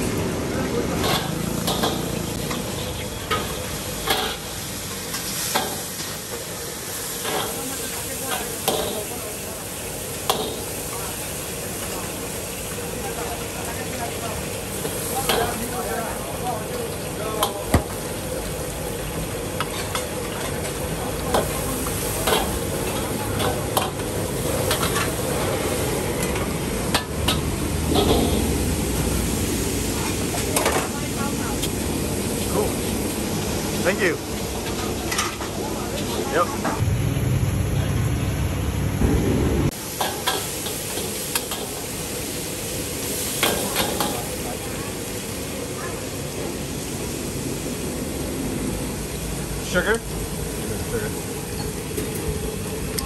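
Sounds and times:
food sizzling in a pan: 0.0 - 37.4, 39.0 - 53.0
low rumble: 36.8 - 39.8.

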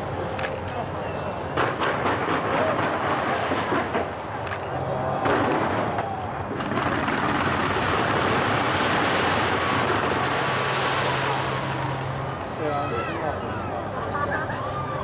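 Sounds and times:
fireworks bangs and crackling: 0.0 - 14.2.

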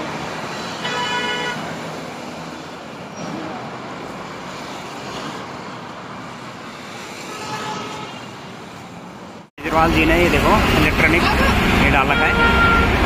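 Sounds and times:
busy road traffic: 0.0 - 13.0
vehicle horn: 0.8 - 1.7, 7.3 - 8.3, 11.9 - 13.0.

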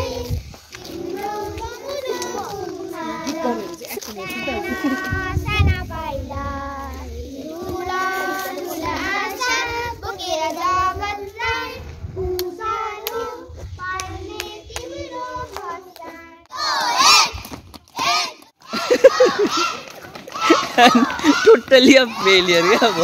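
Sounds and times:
child singing: 0.0 - 17.2.

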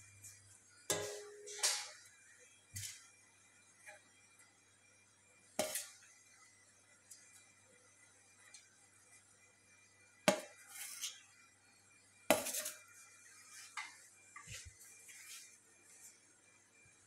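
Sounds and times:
metal pan clanking on platter: 0.9 - 2.0
spoon scraping metal: 5.6 - 6.0, 10.6 - 11.3, 12.4 - 12.8.

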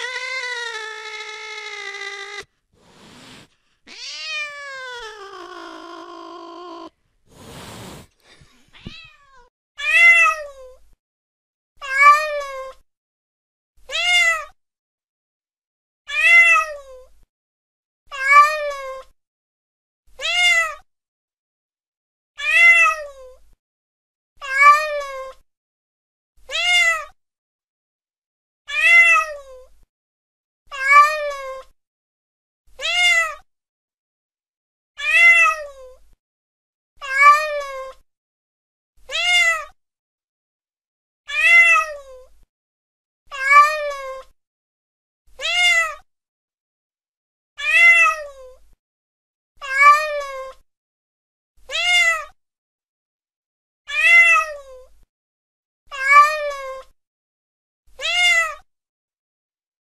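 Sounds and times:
cat meowing: 0.0 - 7.0, 8.7 - 10.5, 13.9 - 14.5, 20.2 - 20.8, 22.4 - 23.2, 26.5 - 27.1, 28.7 - 29.5, 32.8 - 33.4, 35.0 - 35.8, 37.0 - 37.9, 39.1 - 39.7, 41.3 - 42.0, 43.3 - 44.2, 45.4 - 46.0, 47.6 - 48.2, 51.7 - 52.3, 53.9 - 54.6, 58.0 - 58.6.

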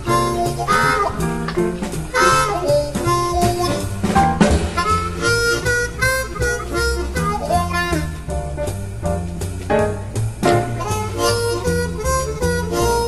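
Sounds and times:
background music: 0.0 - 13.0.

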